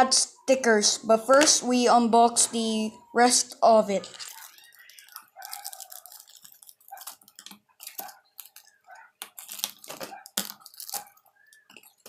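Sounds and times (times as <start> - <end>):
plastic bags crinkling: 4.0 - 12.0.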